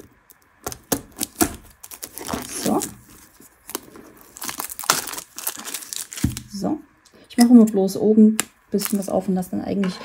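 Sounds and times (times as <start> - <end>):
shrink wrap being torn open: 0.0 - 6.6.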